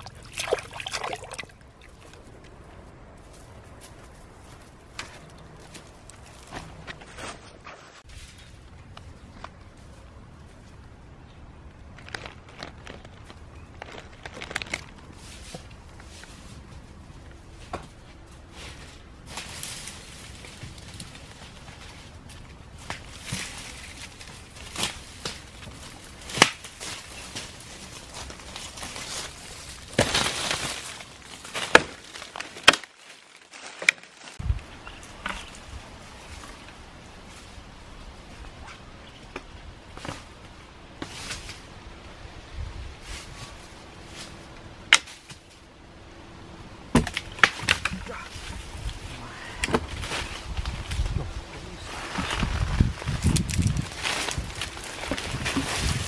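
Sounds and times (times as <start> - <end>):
footsteps in dry leaves: 1.9 - 6.8, 11.9 - 34.4, 49.9 - 56.0
sharp twig cracks: 26.3 - 26.8.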